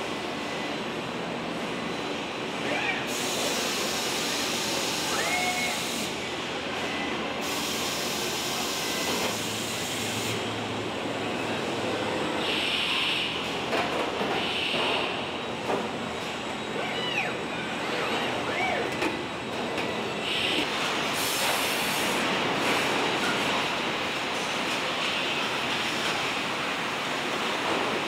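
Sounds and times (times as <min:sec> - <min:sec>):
steady industrial noise: 0:00.0 - 0:28.0
hiss: 0:03.1 - 0:06.1, 0:07.4 - 0:10.4, 0:20.3 - 0:22.2
robot arm motors whining: 0:16.6 - 0:20.6.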